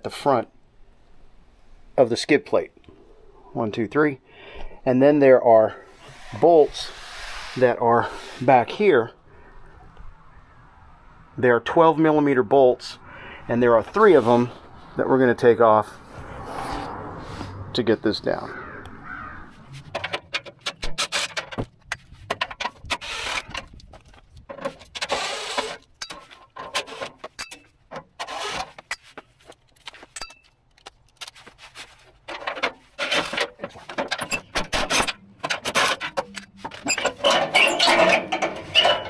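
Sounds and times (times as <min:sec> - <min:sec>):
metal plate scraping and rattling: 0:19.7 - 0:23.8, 0:24.5 - 0:29.1, 0:31.8 - 0:39.0
clicks and metal clatter: 0:19.8 - 0:39.0.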